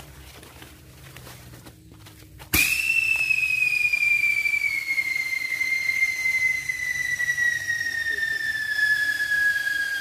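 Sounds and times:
whistling firecracker: 0:02.5 - 0:10.0.

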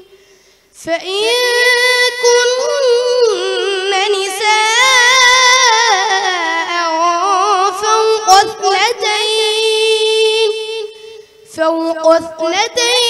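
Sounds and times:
boy reciting melodically: 0:00.0 - 0:13.0
boy breathing: 0:00.1 - 0:00.8, 0:11.0 - 0:11.5.

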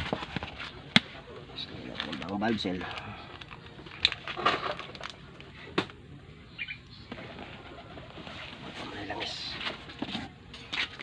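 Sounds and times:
pigeon cooing: 0:06.5 - 0:09.2.

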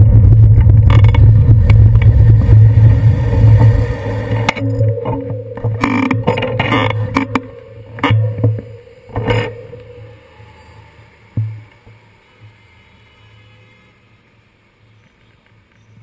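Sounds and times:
low engine hum: 0:00.0 - 0:12.8
traffic driving past: 0:06.8 - 0:15.9.

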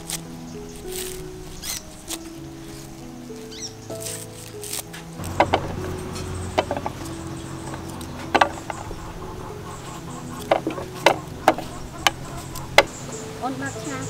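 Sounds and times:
chunks dropping into bamboo tray: 0:05.2 - 0:07.1
low steady hum: 0:05.2 - 0:14.0.

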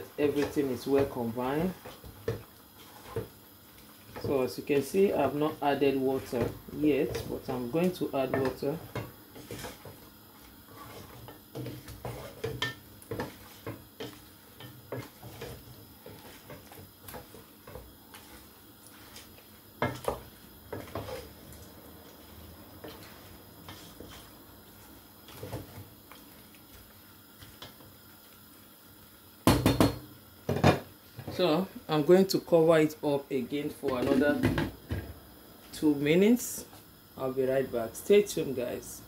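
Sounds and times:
wooden spoon scraping a pot: 0:00.0 - 0:27.9.

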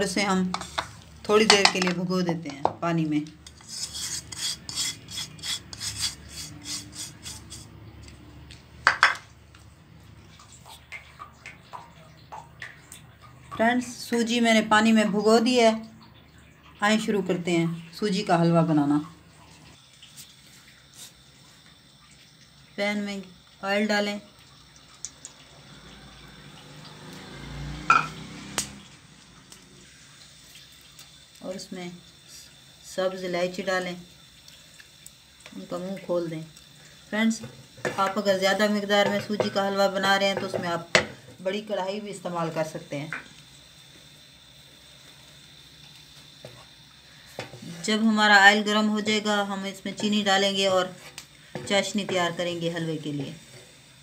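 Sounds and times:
semolina scraped from bowl: 0:03.6 - 0:07.7
knocks on pan: 0:08.8 - 0:09.2, 0:27.9 - 0:28.2, 0:40.4 - 0:41.2
dishes clattering: 0:08.9 - 0:09.2, 0:27.9 - 0:28.2.

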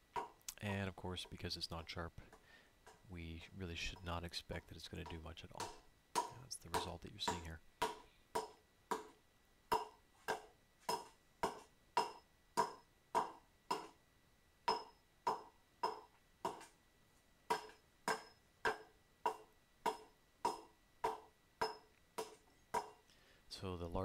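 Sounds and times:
hatchet chopping wood: 0:00.1 - 0:00.4, 0:05.0 - 0:14.0, 0:14.7 - 0:16.8, 0:17.5 - 0:23.0.

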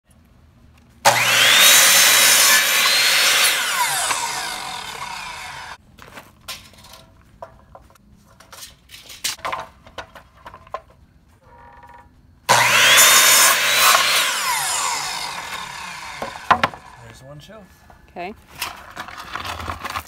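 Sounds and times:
miter saw cutting wood: 0:01.1 - 0:05.8, 0:12.5 - 0:17.2.

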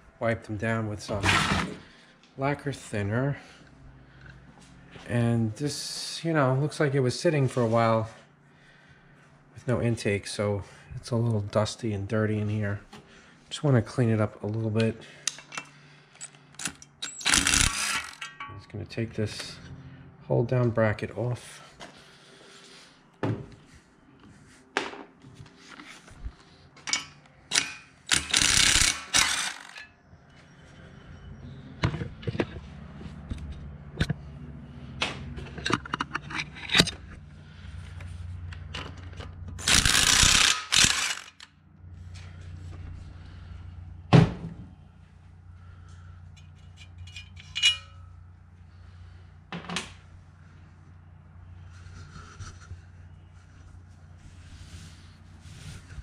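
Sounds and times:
tools clinking: 0:15.2 - 0:18.7, 0:26.8 - 0:30.0, 0:38.5 - 0:41.5, 0:46.3 - 0:48.2
impact wrench hammering: 0:16.8 - 0:18.7, 0:26.9 - 0:29.9, 0:39.6 - 0:41.4.

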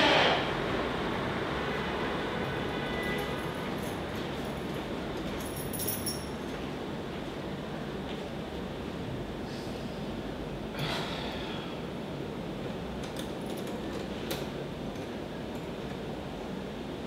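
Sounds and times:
steady background hum: 0:00.0 - 0:17.0
sharp exhale: 0:10.7 - 0:11.8.

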